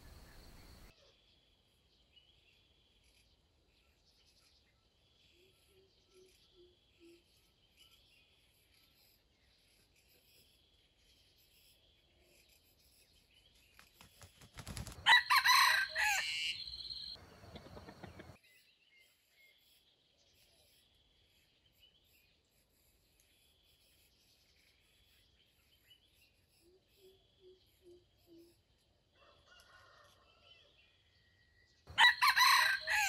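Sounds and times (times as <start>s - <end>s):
faint high insect drone: 0.0s - 1.7s, 5.2s - 18.3s
rooster crowing: 15.0s - 18.3s, 29.2s - 30.6s, 31.9s - 33.0s.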